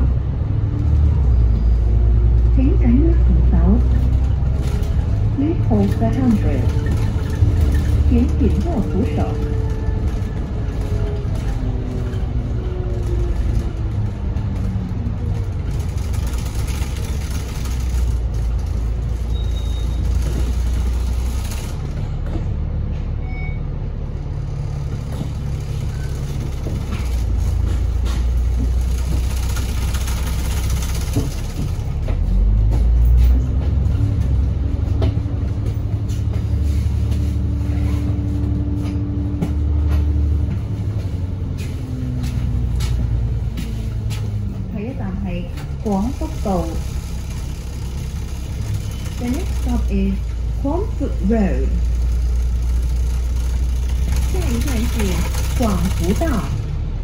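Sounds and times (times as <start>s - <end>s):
bus engine and gearbox whine: 0.0s - 57.0s.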